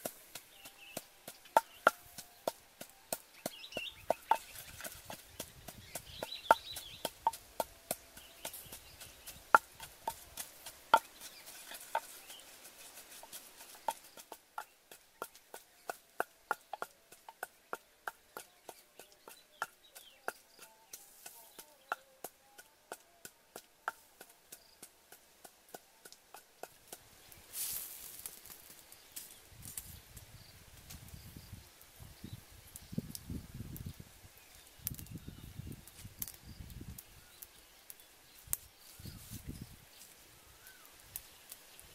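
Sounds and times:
wooden pestle pounding in mortar: 0.3s - 12.3s, 13.2s - 22.7s.

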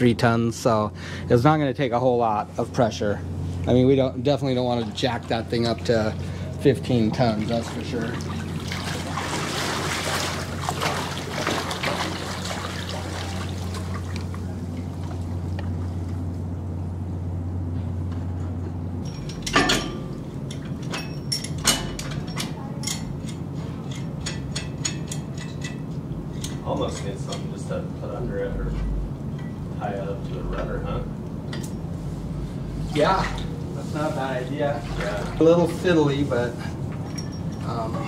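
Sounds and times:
water trickling and dripping: 6.9s - 15.7s.

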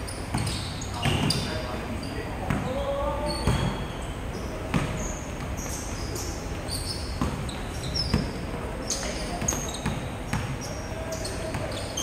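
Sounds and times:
shoe squeaks: 0.0s - 12.0s
basketball bouncing on floor: 3.4s - 3.8s, 4.7s - 5.6s, 7.2s - 7.5s, 9.3s - 10.6s.

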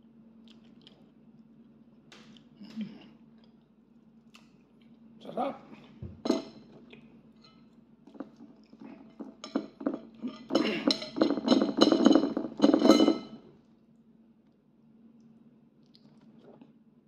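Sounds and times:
wet chewing and lip-smacking: 0.4s - 2.6s, 15.2s - 16.7s.

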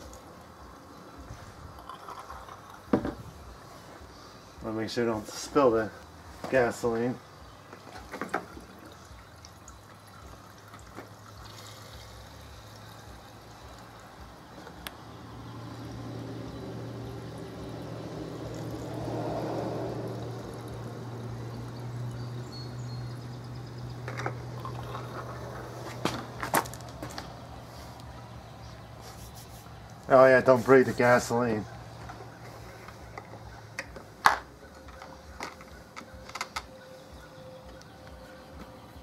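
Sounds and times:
gas can knocks: 2.9s - 3.2s
gasoline pouring into fuel tank: 7.8s - 14.0s, 20.1s - 20.9s, 23.1s - 27.2s.

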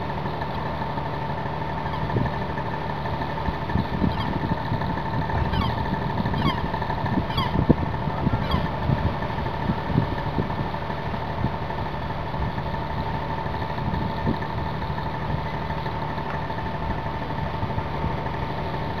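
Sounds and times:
engine idling hum: 0.0s - 19.0s.

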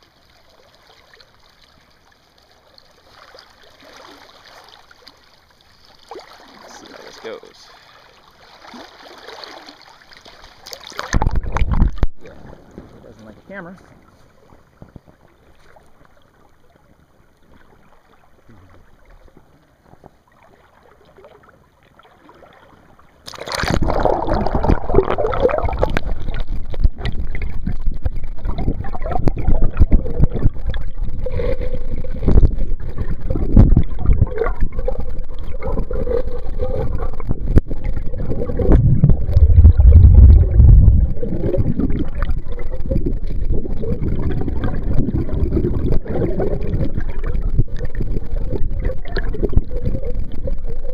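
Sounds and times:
creek water flowing: 0.0s - 50.9s
muffled underwater rushing current: 5.7s - 13.2s, 23.2s - 50.9s
low thumps: 37.0s - 42.2s.

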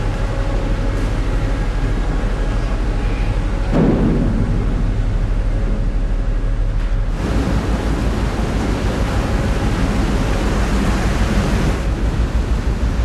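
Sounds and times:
ship engines rumbling: 0.0s - 13.0s
water rushing and splashing: 7.1s - 13.0s.

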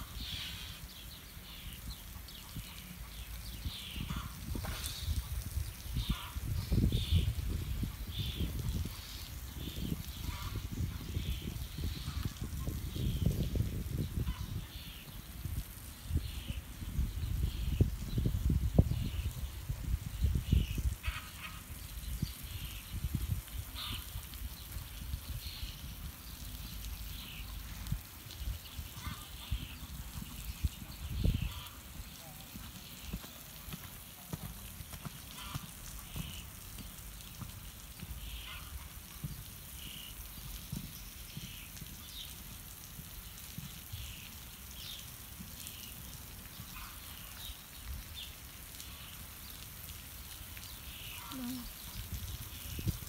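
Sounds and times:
sprinkler water spray hissing: 0.0s - 53.0s
horse cantering on sand: 32.2s - 38.2s.

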